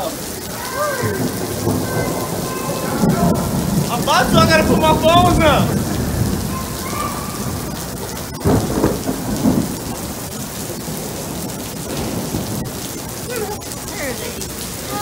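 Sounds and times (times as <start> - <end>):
steady rain: 0.0 - 15.0
thunder rumble: 0.4 - 15.0.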